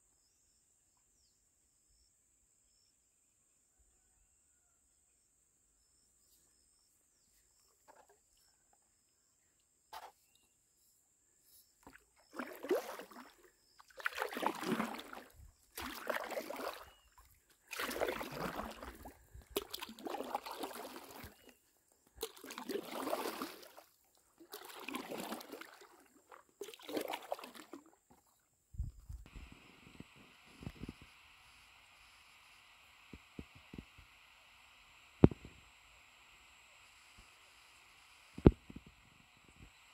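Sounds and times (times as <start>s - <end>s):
paddle strokes splashing water: 11.8s - 21.6s, 22.2s - 28.3s.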